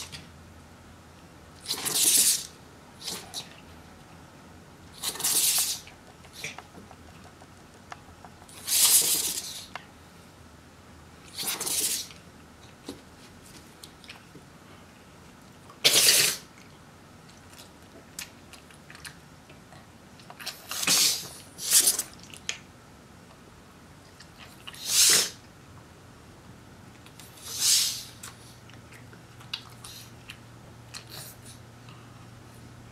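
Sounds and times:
dog sneezing: 1.6s - 3.3s, 5.0s - 6.5s, 8.5s - 9.7s, 11.3s - 12.2s, 15.8s - 16.5s, 20.5s - 22.1s, 24.7s - 25.4s, 27.4s - 28.2s.

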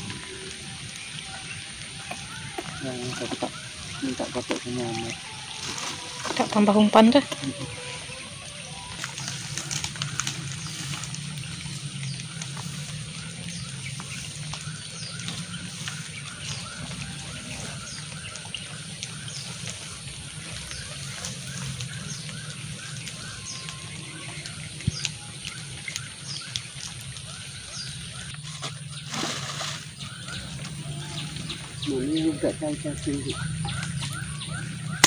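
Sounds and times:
repeated chirping animal calls: 30.0s - 35.0s.

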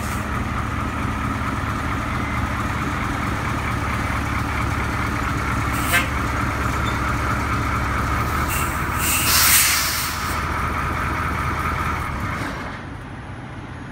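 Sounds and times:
diesel engine idling: 0.0s - 13.9s
loud air hiss: 8.4s - 10.4s.

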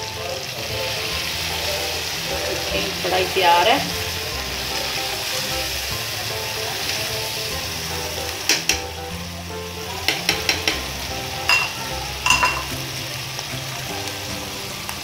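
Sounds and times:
gravy sizzling in hot oil: 0.0s - 15.0s
metal spoon clinking on pan: 8.5s - 8.9s, 10.1s - 10.9s, 11.5s - 12.8s.

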